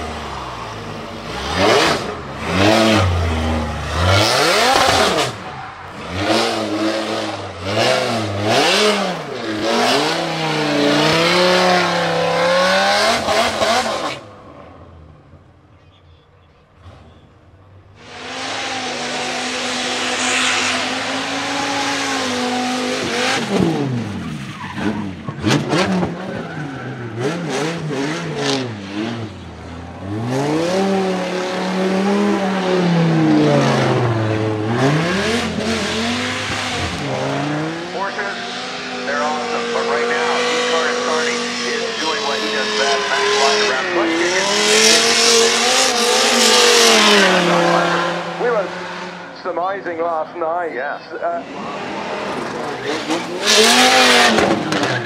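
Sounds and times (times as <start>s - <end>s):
car engine revving: 0.0s - 15.6s, 16.8s - 55.0s.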